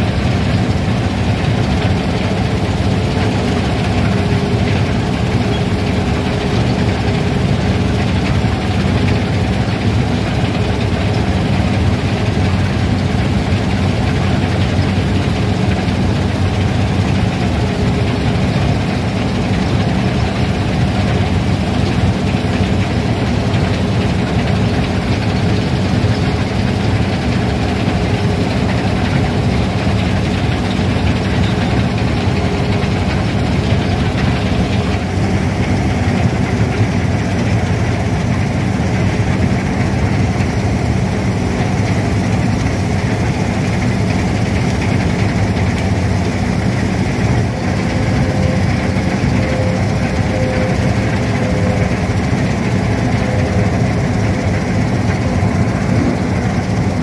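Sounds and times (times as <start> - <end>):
combine harvester running: 0.0 - 57.0.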